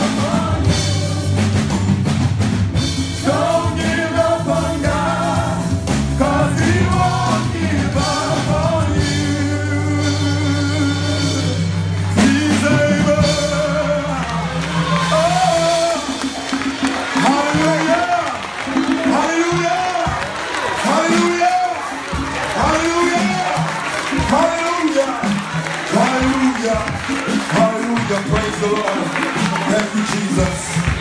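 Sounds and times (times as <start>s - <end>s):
man singing lead: 0.0s - 1.7s, 3.1s - 16.4s, 17.1s - 20.2s, 20.8s - 31.0s
choir singing: 0.0s - 1.9s, 3.2s - 10.9s
drums: 0.0s - 31.0s
keyboard chords: 0.0s - 31.0s.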